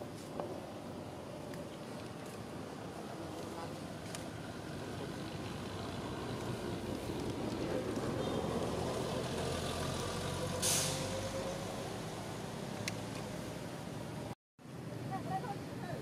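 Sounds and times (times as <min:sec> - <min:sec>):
vehicle engine rumble: 0:00.0 - 0:15.8
short sharp hiss: 0:10.6 - 0:11.1.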